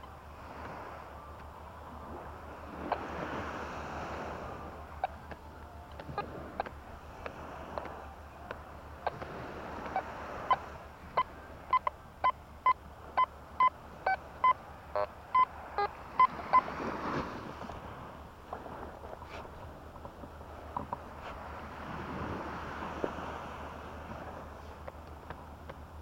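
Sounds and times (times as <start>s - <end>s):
metal detector beeps: 5.0s - 16.7s.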